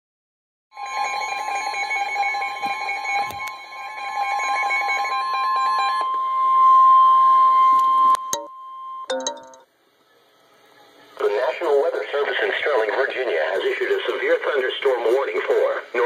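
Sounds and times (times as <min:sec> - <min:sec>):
steady high alarm tone: 0:00.7 - 0:09.6.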